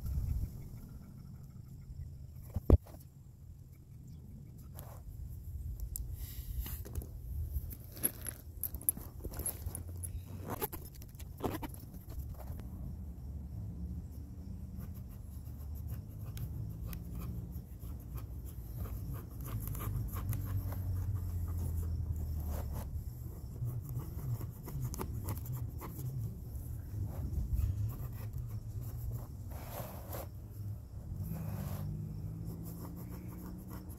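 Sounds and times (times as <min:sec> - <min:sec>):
scratching and rubbing strokes: 0:14.6 - 0:33.9.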